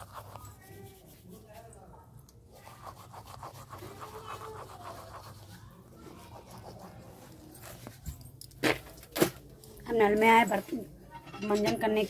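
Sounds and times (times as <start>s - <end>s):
toothbrush scrubbing teeth: 0.0s - 7.4s.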